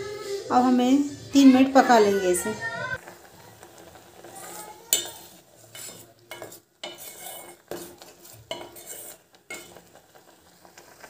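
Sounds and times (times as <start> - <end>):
spoon scraping a metal pot: 4.4 - 9.9.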